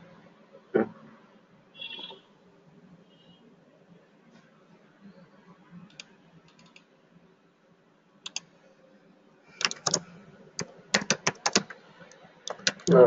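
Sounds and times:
faint steady hum: 0.0s - 13.0s
keyboard typing: 5.8s - 6.9s, 8.2s - 8.5s, 9.5s - 13.0s.

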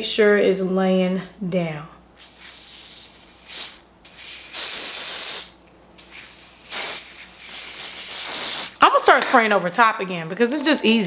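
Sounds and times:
spray can hissing: 2.2s - 8.8s.

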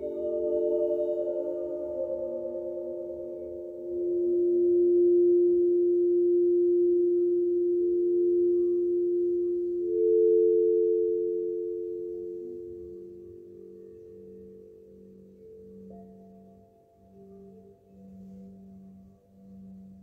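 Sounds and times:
metal tone bars ringing: 0.0s - 7.4s.

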